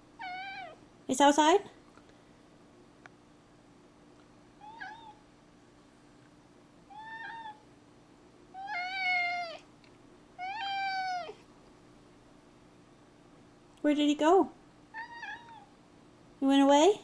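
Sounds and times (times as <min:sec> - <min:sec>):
cat meowing: 0:00.2 - 0:00.8, 0:04.6 - 0:05.2, 0:06.9 - 0:07.6, 0:08.5 - 0:09.7, 0:10.4 - 0:11.4, 0:14.9 - 0:15.8.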